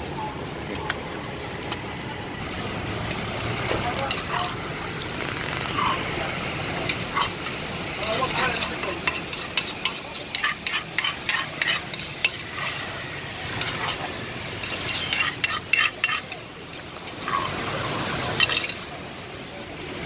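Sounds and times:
spoon scraping a clay mortar: 0:06.9 - 0:17.6.

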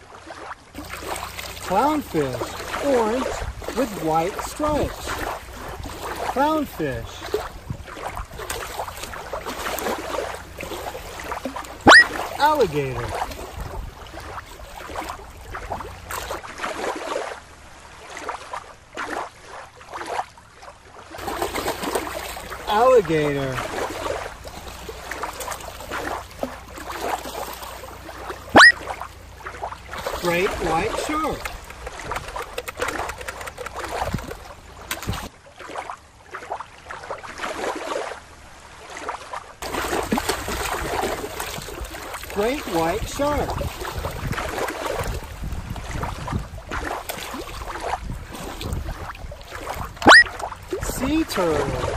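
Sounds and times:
water lapping and sloshing: 0:00.0 - 0:51.9
low wind rumble: 0:00.8 - 0:16.4, 0:43.1 - 0:46.9, 0:47.5 - 0:51.0.

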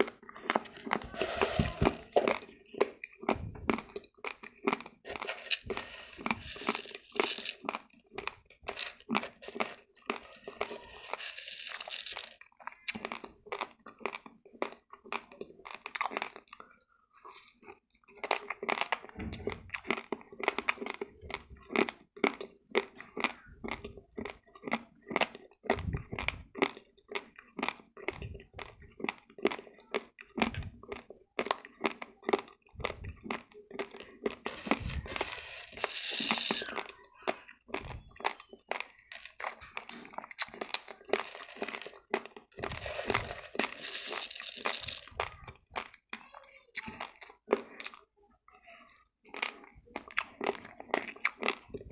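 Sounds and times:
dry rice crunching: 0:00.0 - 0:14.2, 0:31.4 - 0:37.0, 0:37.7 - 0:46.0.

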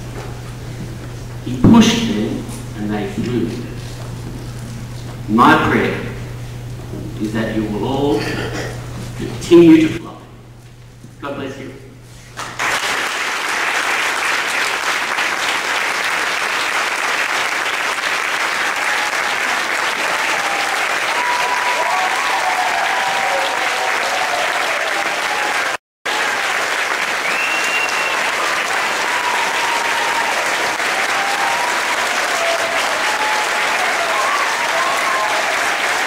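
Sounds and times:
audience applauding: 0:12.4 - 0:36.0.

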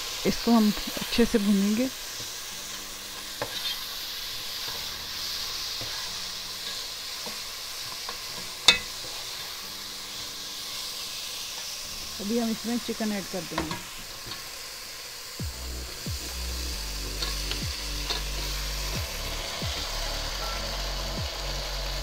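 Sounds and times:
masala sizzling in hot oil: 0:00.0 - 0:22.0
spatula stirring and scraping: 0:02.0 - 0:11.8, 0:16.2 - 0:19.8.

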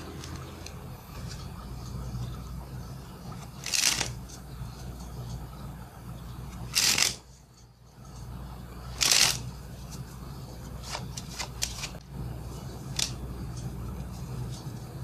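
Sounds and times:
playing cards shuffling: 0:00.0 - 0:02.3, 0:03.3 - 0:05.4, 0:06.5 - 0:07.4, 0:08.2 - 0:15.0
playing cards snapping: 0:03.6 - 0:04.3, 0:06.7 - 0:07.2, 0:09.0 - 0:09.5, 0:12.9 - 0:13.2.

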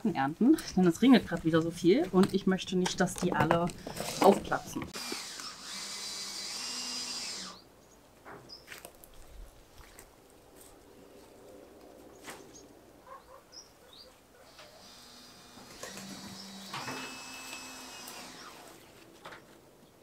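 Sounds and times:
cordless drill motor whining: 0:03.7 - 0:07.6, 0:14.5 - 0:18.9.

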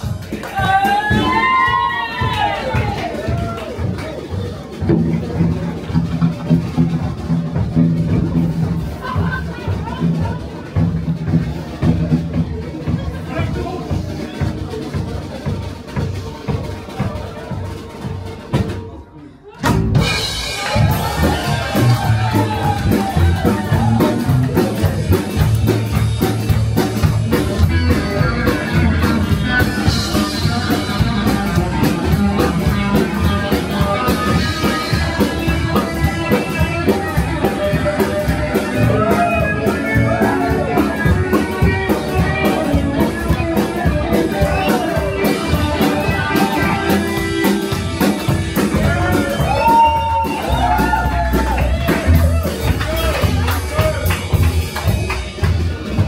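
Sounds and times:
drum kit: 0:00.0 - 0:56.0
upright double bass: 0:02.2 - 0:18.8, 0:19.6 - 0:56.0
electric guitar: 0:19.6 - 0:56.0.

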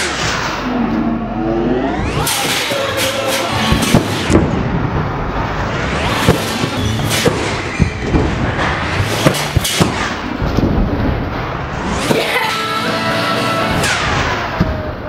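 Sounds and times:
electronic music with drum hits: 0:00.0 - 0:10.3.

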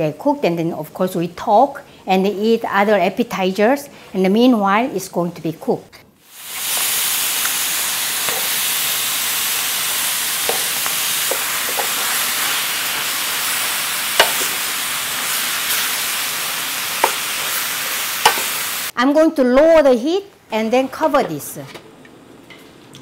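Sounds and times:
food sizzling in a skillet: 0:06.2 - 0:18.9
utensils clicking against pan: 0:08.2 - 0:08.6, 0:10.4 - 0:13.1, 0:14.1 - 0:14.7, 0:17.0 - 0:18.6.

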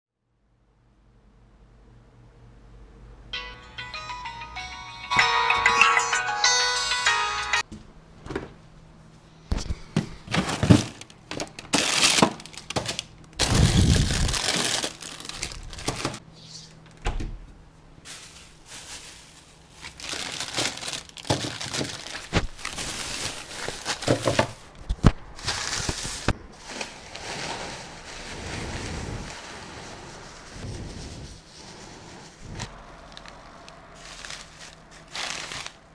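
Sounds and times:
plastic wrappers rustling: 0:10.3 - 0:16.2, 0:18.0 - 0:30.6, 0:32.6 - 0:35.9.

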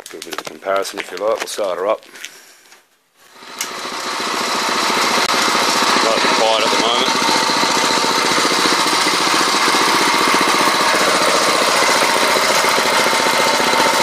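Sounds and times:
kart engine running: 0:03.3 - 0:14.0.

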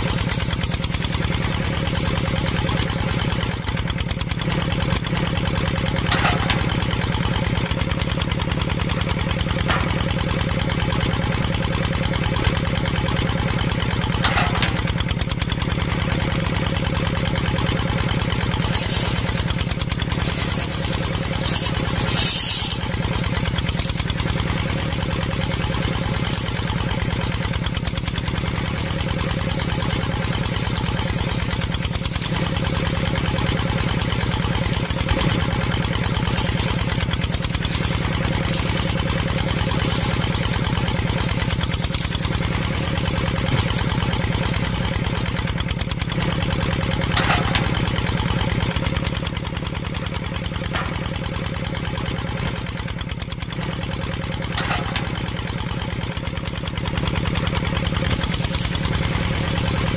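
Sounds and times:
grains pouring into hopper: 0:00.0 - 0:03.6, 0:18.6 - 0:45.2, 0:58.1 - 0:59.9
small mill motor humming: 0:00.0 - 0:03.7, 0:18.6 - 0:45.4, 0:58.1 - 0:59.9.

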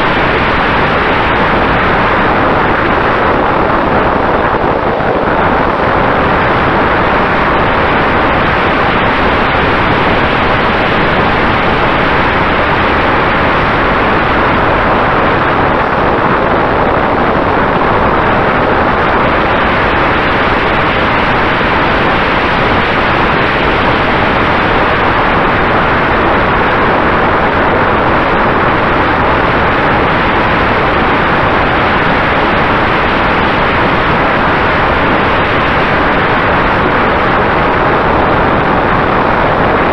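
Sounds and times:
airflow and propeller noise: 0:00.0 - 0:39.9.

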